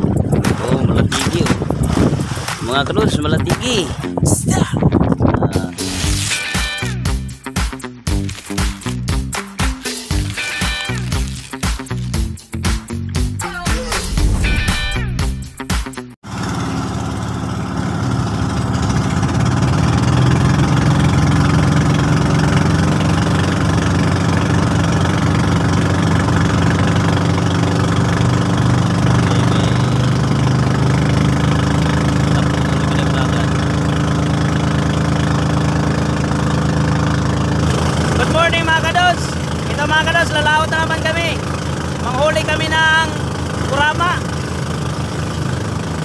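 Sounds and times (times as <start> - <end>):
boat engine chugging: 0.0 - 4.4, 16.3 - 46.0.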